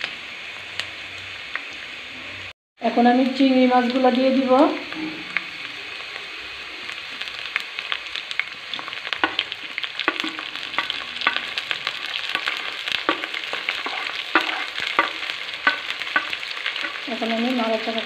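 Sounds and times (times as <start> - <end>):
food sizzling in hot oil: 0.0 - 18.0
oil popping and crackling: 3.8 - 18.0
wooden spatula stirring: 10.0 - 17.1.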